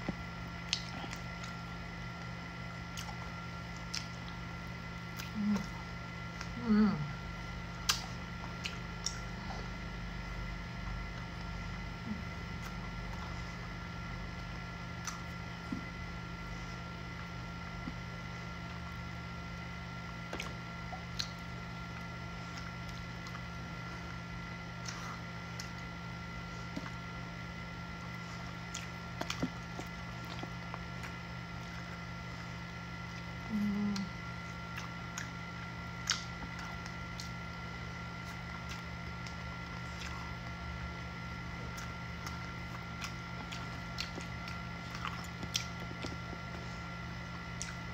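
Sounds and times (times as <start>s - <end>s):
person chewing and sucking fingers: 0.0s - 4.4s, 7.7s - 9.3s, 20.2s - 23.5s, 28.0s - 32.0s, 33.9s - 37.6s, 41.5s - 46.6s, 47.3s - 47.9s
food squishes and chewing: 0.0s - 6.6s, 7.2s - 47.9s
steady low hum: 0.0s - 47.9s
lip smacks and clicks: 0.1s - 1.6s, 3.8s - 4.4s, 7.8s - 9.3s, 20.3s - 21.5s, 36.0s - 37.6s, 41.7s - 46.5s.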